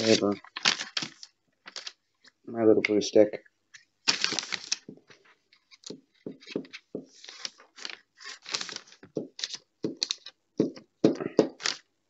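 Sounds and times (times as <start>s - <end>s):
paper rustling: 0.0s - 2.4s, 3.8s - 10.4s, 11.5s - 11.9s.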